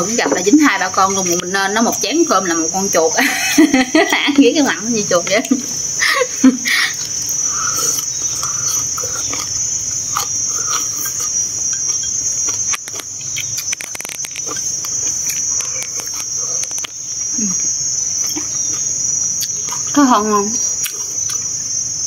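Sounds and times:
insects shrilling: 0.0s - 22.0s
soft eating sounds: 5.4s - 22.0s.

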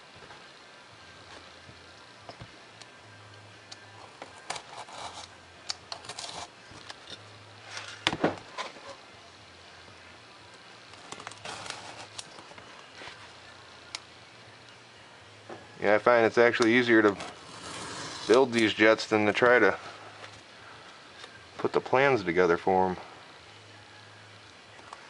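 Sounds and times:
knife scoring foam: 4.4s - 5.4s.

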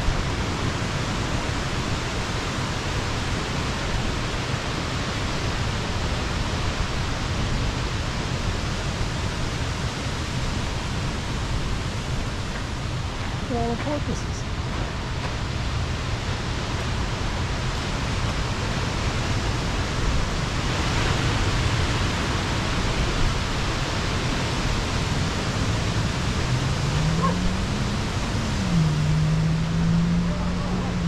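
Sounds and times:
surf breaking and washing: 0.0s - 31.0s
low droning tone: 25.3s - 31.0s.

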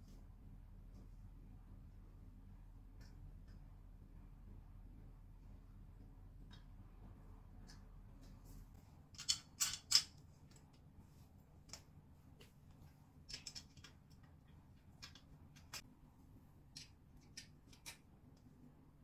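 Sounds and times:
metal clicks and scrapes: 9.2s - 10.8s.

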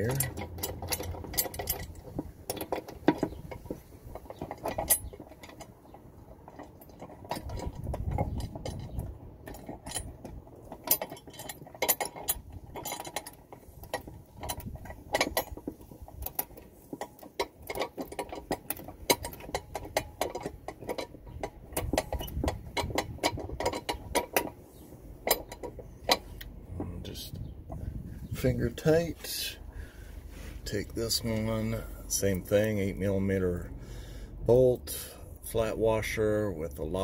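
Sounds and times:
metallic clicks and clinks: 0.0s - 24.6s, 25.2s - 26.9s.

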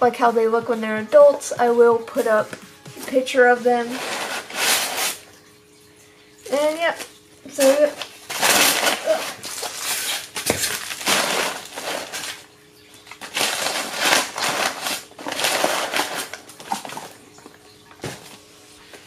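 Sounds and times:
packing paper rustling and crinkling: 2.2s - 5.2s, 6.9s - 17.4s.

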